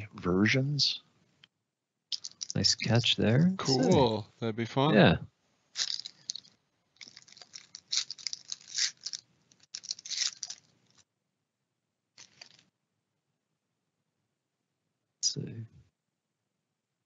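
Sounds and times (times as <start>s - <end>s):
wrapper rustle: 2.1s - 2.6s, 5.7s - 11.0s, 12.2s - 12.7s
foil wrapper crinkling: 5.8s - 11.0s, 12.2s - 12.6s.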